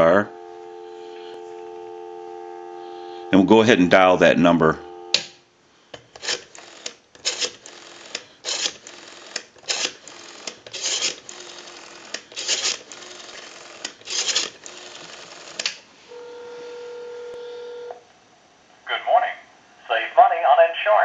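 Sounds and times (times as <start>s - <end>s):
telephone ringing tone: 0.0s - 5.2s, 16.1s - 18.0s
rotary dial whirring and clicking: 6.0s - 15.8s.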